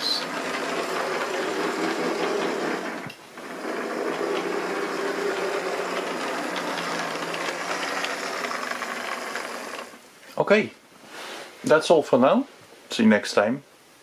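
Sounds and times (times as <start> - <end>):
model train motor whirring: 0.0 - 10.0
model train wheels rolling: 0.0 - 10.0.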